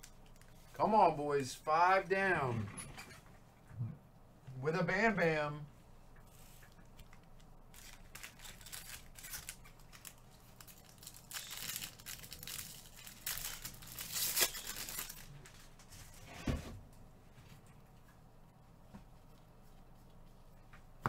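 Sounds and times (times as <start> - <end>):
foil wrappers tearing and crinkling: 7.0 - 15.8.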